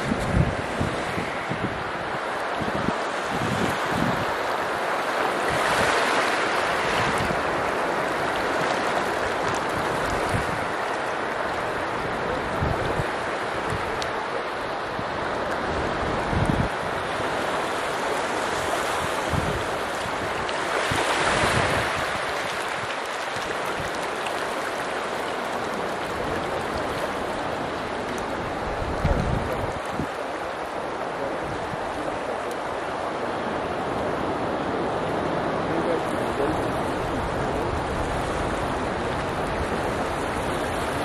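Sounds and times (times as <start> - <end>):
wind thumping on microphone: 0.0 - 4.5, 5.3 - 10.8, 12.0 - 14.2, 15.0 - 17.5, 18.6 - 30.2
surf washing on beach: 0.0 - 41.0.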